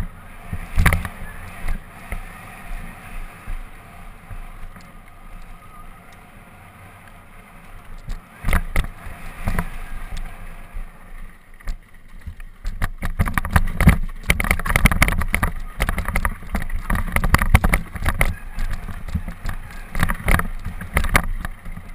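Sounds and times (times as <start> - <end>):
bike knocking over bumps: 0.0 - 2.3, 8.0 - 10.2, 11.6 - 21.9
tyre and wind rush: 0.0 - 5.0
bike rattling over rocky ground: 0.0 - 5.9, 7.1 - 21.9.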